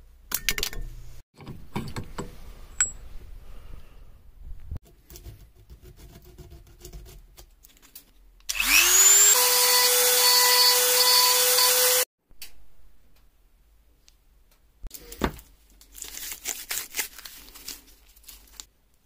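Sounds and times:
rotary tool motor whining: 0:08.5 - 0:12.0.

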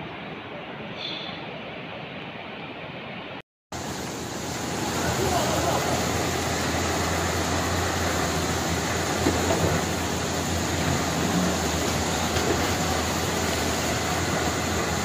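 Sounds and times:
flood river rushing: 0:03.8 - 0:15.0.

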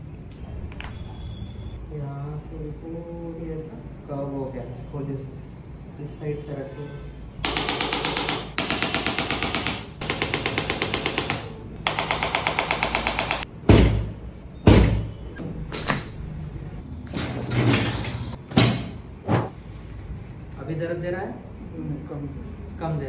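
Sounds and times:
rapid electric tapping: 0:07.4 - 0:13.5.

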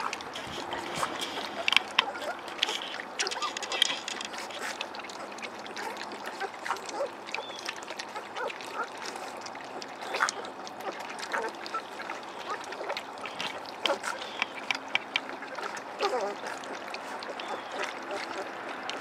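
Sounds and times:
puppies lapping and slurping: 0:00.0 - 0:19.0
puppy squeaks and grunts: 0:00.4 - 0:04.6.

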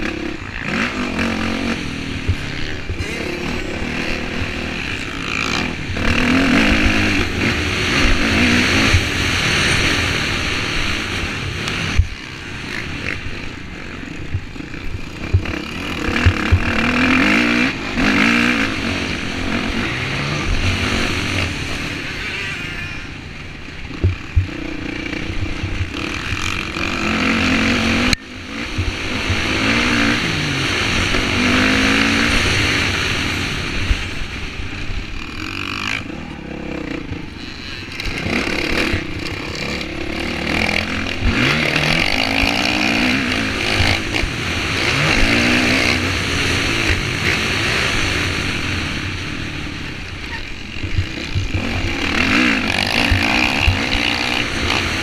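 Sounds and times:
dirt bike engine revving: 0:00.0 - 0:55.0
sharp thumps: 0:23.9 - 0:24.6.

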